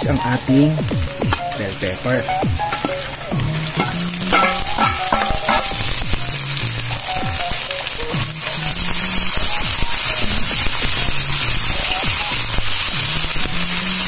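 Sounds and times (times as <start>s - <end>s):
vegetables sizzling in a pan: 0.0s - 14.0s
metal spatula scraping a pan: 3.7s - 6.4s.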